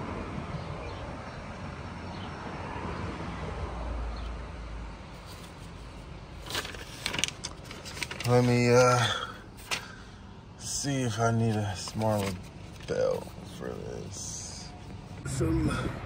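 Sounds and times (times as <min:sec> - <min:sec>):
paper rustling and clicks: 0:06.4 - 0:10.0, 0:11.4 - 0:13.2.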